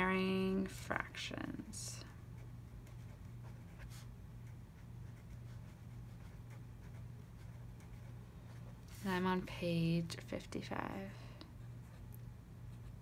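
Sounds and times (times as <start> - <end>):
low steady hum: 0.0 - 13.0
pen scratching on paper: 2.4 - 9.2.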